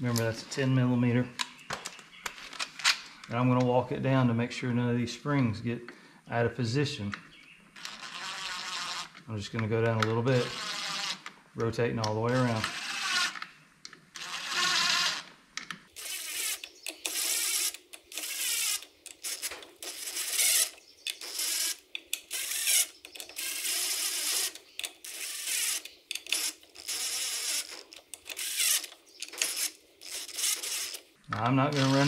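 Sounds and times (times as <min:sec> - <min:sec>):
cordless drill spinning in bursts: 0:07.8 - 0:09.1, 0:10.4 - 0:11.2, 0:12.6 - 0:13.4, 0:14.2 - 0:15.3, 0:16.0 - 0:27.7, 0:28.3 - 0:31.0, 0:31.7 - 0:32.0.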